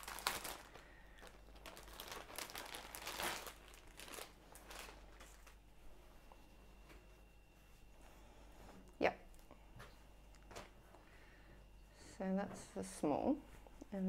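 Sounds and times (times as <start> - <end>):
plastic bag crinkling: 0.0 - 5.6.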